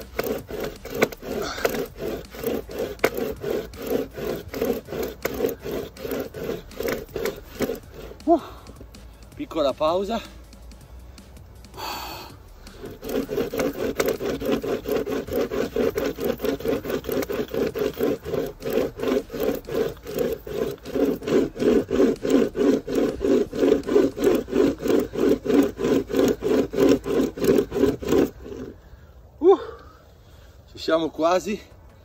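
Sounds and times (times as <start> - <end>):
hand chain saw cutting wood: 0.0 - 29.0.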